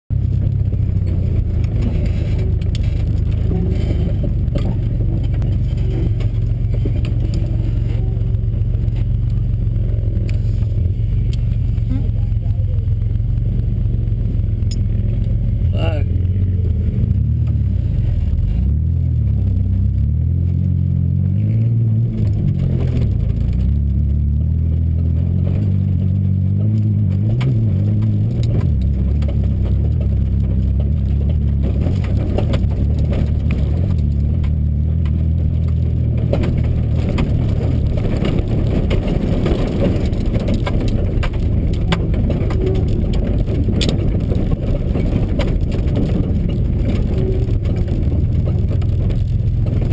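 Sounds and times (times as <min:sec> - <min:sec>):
rattles and knocks: 0:00.1 - 0:12.6, 0:24.8 - 0:49.9
truck engine from inside cab: 0:00.1 - 0:49.9.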